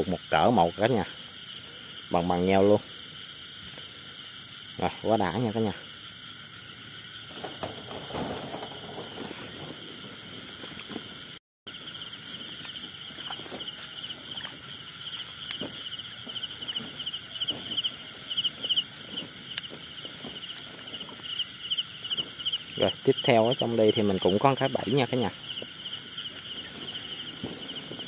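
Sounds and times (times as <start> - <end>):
insects trilling and chirping: 0.0 - 28.0
footsteps through grass and straw: 12.1 - 28.0.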